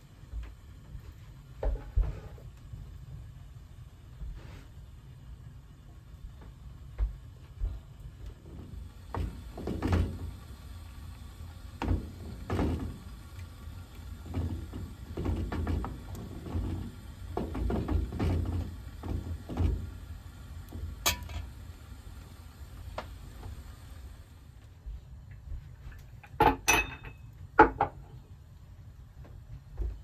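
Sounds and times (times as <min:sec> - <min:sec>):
ladle knocking and scraping pot: 0:21.0 - 0:21.6
sharp metallic clink: 0:26.7 - 0:27.3.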